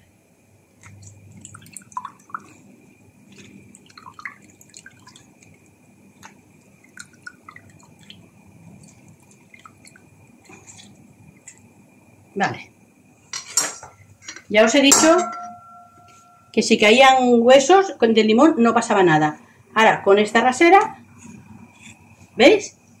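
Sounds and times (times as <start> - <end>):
lemon juice dripping into water: 0.8 - 2.6, 3.3 - 11.7.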